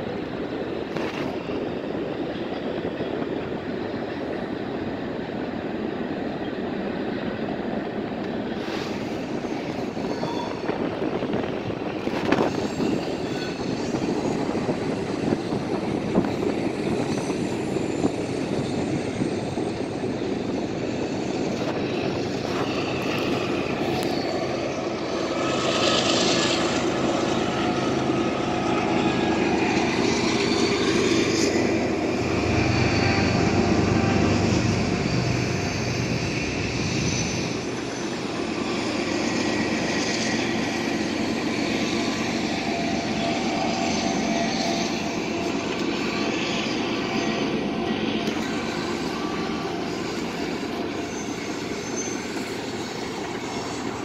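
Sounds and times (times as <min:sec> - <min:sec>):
freight train rumbling: 0:00.0 - 0:54.0
street traffic: 0:19.8 - 0:54.0.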